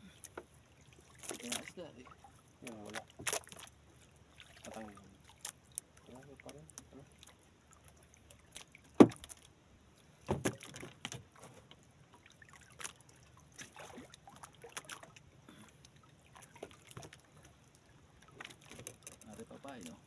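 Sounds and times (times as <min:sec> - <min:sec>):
knocks and clatter on wooden boat: 0:02.9 - 0:03.7, 0:08.9 - 0:09.5, 0:10.2 - 0:11.8, 0:16.4 - 0:17.6, 0:18.2 - 0:20.0.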